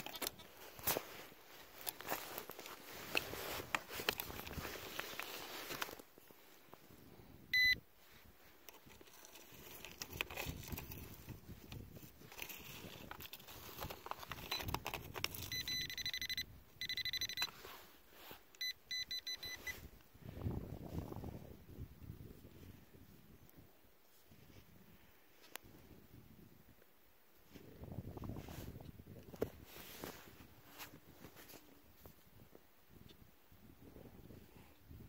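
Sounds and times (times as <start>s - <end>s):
soil and stones scraping: 0.0s - 6.4s, 8.1s - 15.6s
metal detector pinpointer beeping: 7.5s - 7.8s, 15.4s - 17.6s, 18.6s - 19.8s.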